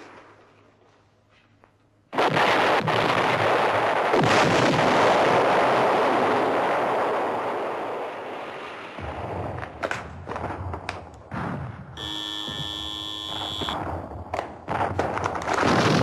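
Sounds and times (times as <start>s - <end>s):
sharp cracks: 9.5s - 16.0s.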